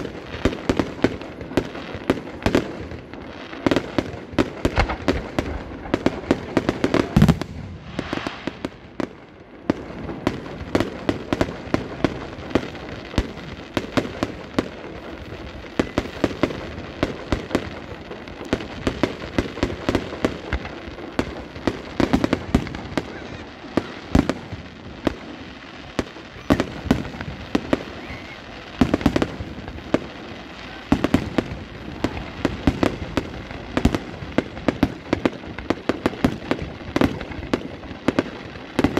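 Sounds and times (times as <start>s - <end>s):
fireworks bursts and crackles: 0.0s - 38.9s.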